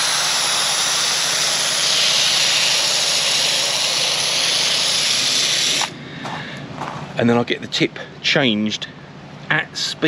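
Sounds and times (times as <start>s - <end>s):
foam sprayer hissing: 0.0s - 6.0s.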